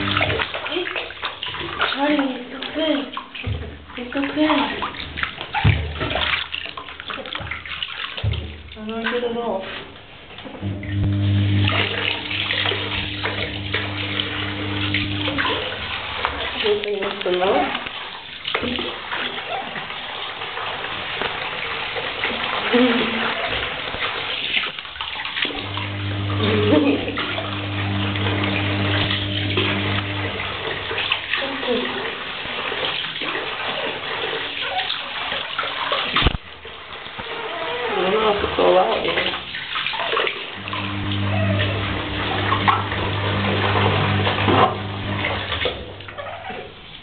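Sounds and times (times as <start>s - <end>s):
bath water splashing: 0.0s - 47.0s
steady low hum: 10.6s - 15.6s.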